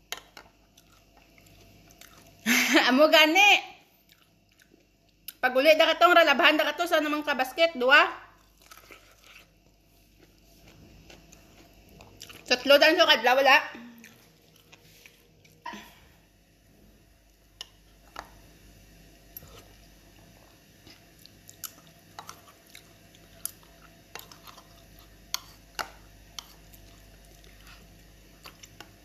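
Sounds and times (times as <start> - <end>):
person chewing corn: 0.4 - 2.4, 4.0 - 5.4, 8.4 - 12.5, 13.9 - 15.6, 19.3 - 29.0.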